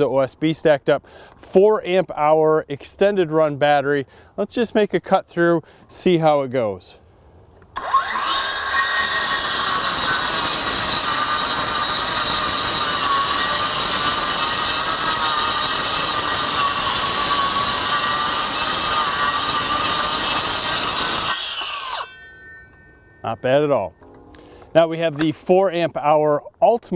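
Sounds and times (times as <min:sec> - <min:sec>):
saw blade rasping through board: 0:07.8 - 0:22.2
circular saw motor whine: 0:07.8 - 0:23.3.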